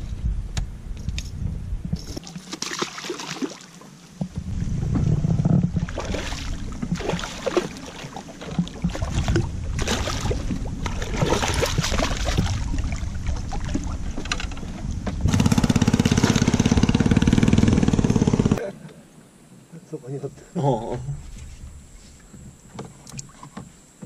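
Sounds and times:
water sloshing around boat: 2.1s - 17.5s, 20.9s - 24.0s
pulsing motor drone: 12.5s - 18.6s.

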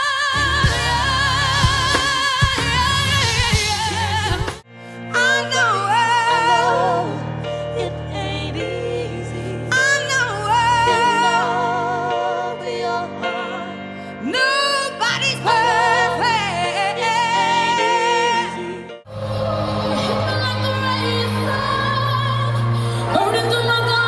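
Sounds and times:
live band playing: 0.3s - 4.6s.

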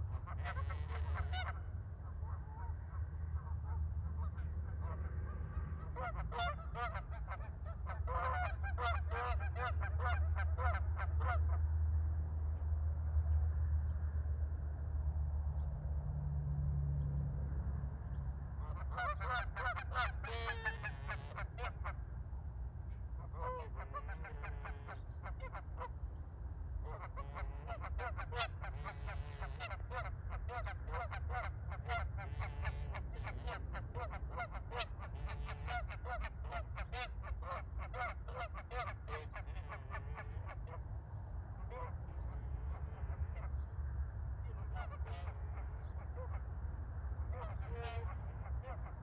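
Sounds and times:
geese honking: 0.0s - 11.6s, 18.6s - 22.0s, 23.2s - 26.0s, 26.8s - 40.8s, 41.6s - 43.6s, 44.4s - 46.5s, 47.2s - 49.0s
steady low rumble: 0.0s - 49.0s.

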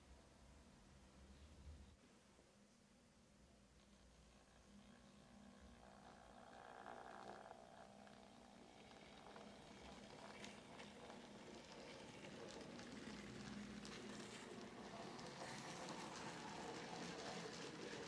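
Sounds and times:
model train rumbling on track: 5.7s - 18.0s.

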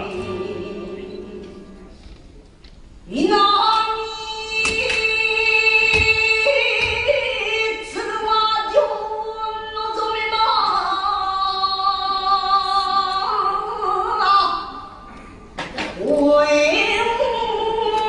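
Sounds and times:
woman singing long notes: 3.1s - 14.6s.

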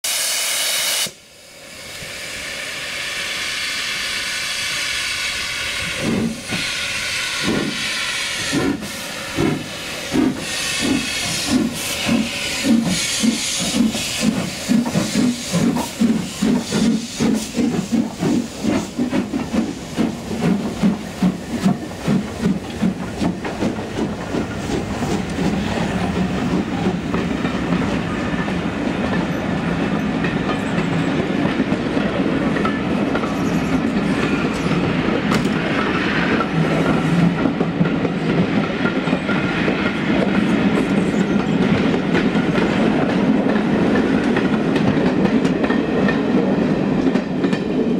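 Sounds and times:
steam locomotive whistle: 0.0s - 9.0s
steam hissing: 0.0s - 29.9s
locomotive exhaust beats: 8.4s - 29.6s.

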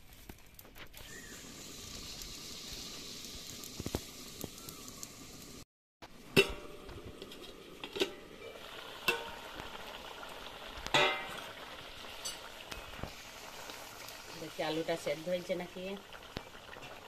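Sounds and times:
simmering hiss: 1.0s - 10.1s
metal spatula clanking on wok: 6.4s - 6.8s, 9.0s - 9.5s, 10.9s - 11.4s.

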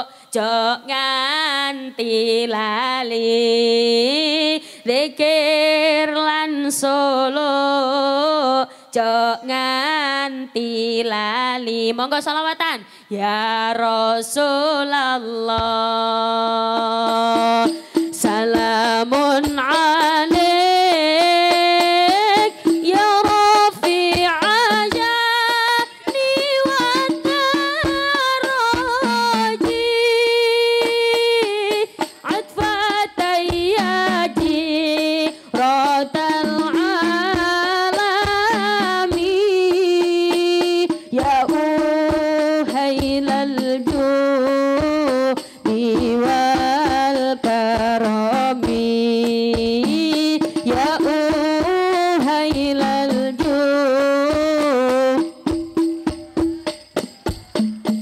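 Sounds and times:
woman singing devotional song: 0.0s - 55.7s
light percussion: 15.4s - 58.0s.

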